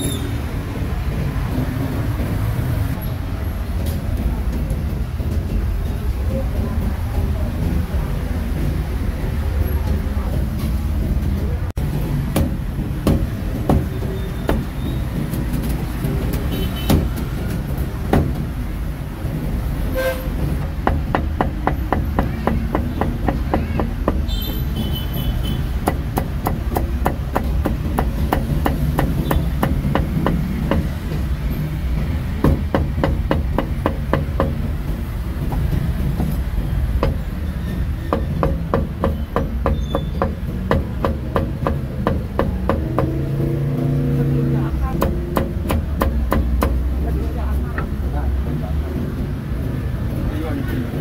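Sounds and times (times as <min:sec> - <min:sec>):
cleaver chopping meat on block: 0:12.3 - 0:13.9.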